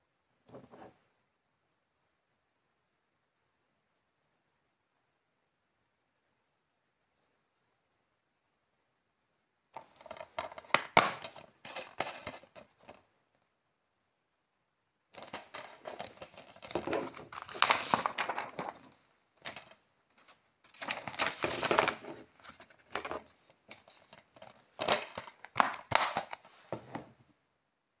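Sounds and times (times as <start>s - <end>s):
plastic film crinkling and tearing: 15.2s - 23.1s, 23.7s - 26.5s.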